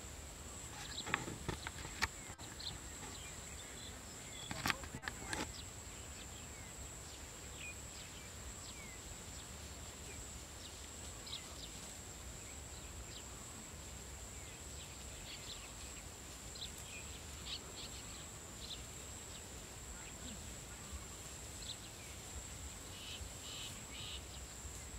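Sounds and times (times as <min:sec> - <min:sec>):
high insect drone: 0:00.0 - 0:24.9.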